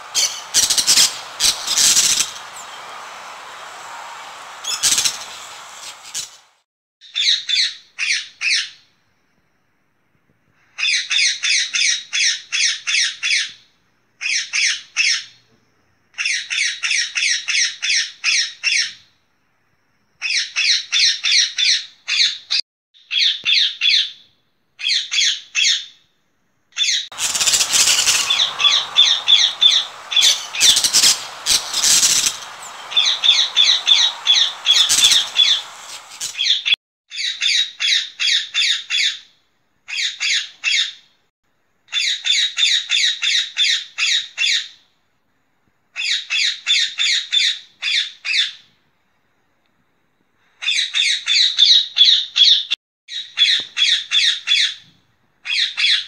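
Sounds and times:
parakeet calling shrilly: 0.0s - 6.6s, 27.1s - 36.7s.

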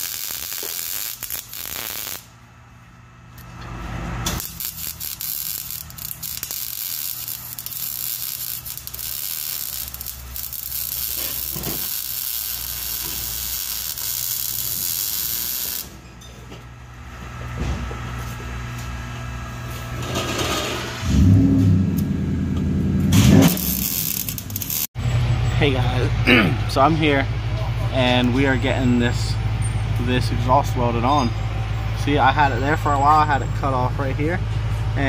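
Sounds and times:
welder arc crackling: 0.0s - 2.3s, 4.3s - 15.9s, 23.1s - 24.9s.

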